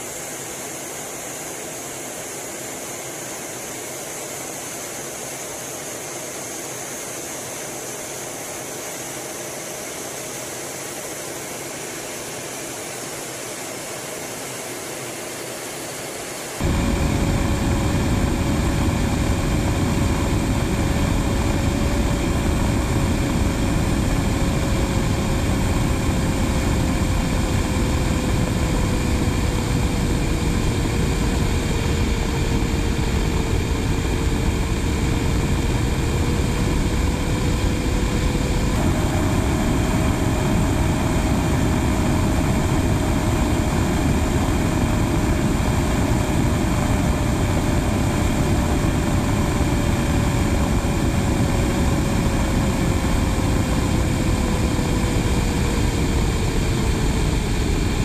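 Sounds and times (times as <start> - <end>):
jet engine noise: 0.0 - 58.0
steady whine: 0.0 - 58.0
rushing airflow: 16.3 - 58.0.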